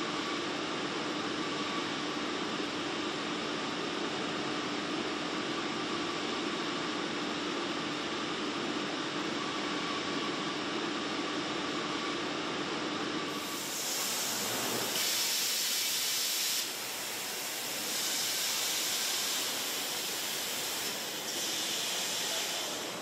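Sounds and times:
rushing hiss: 13.4 - 22.9.

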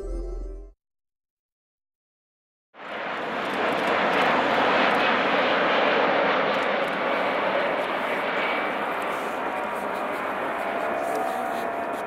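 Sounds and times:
jet engines rushing and whining: 2.8 - 12.0.

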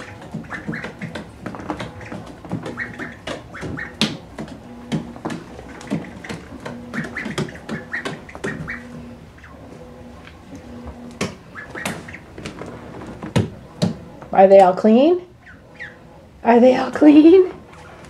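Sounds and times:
duckling feet tapping on floor: 0.0 - 9.6, 10.2 - 14.8
high duckling peeps: 0.0 - 12.6, 15.2 - 16.9.

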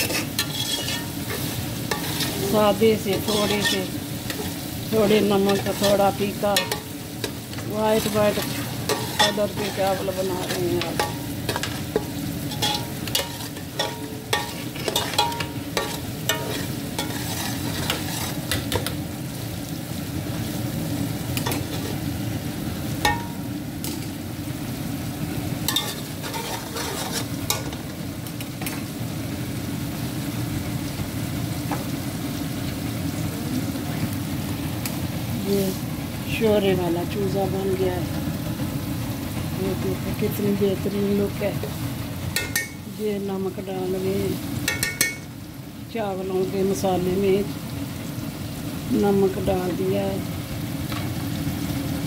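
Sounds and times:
metal ladle scraping pot: 0.0 - 2.4, 10.4 - 18.7, 25.7 - 27.7
onions frying in oil: 0.0 - 52.0.

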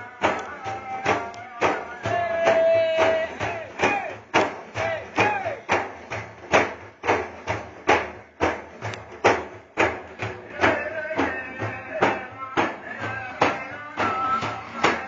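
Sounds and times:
person singing: 0.0 - 5.7, 10.4 - 15.0
drum beaten in steady rhythm: 0.0 - 15.0.

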